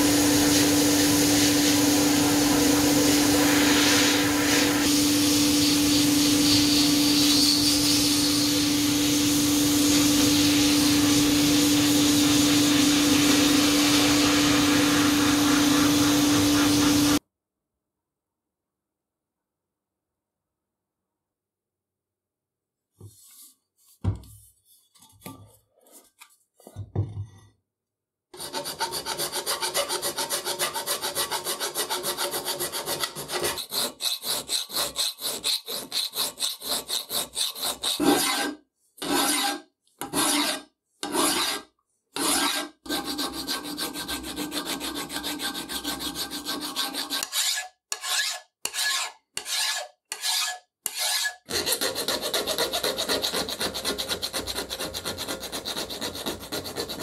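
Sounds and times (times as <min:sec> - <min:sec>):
hand file scraping metal: 0:28.4 - 0:57.0.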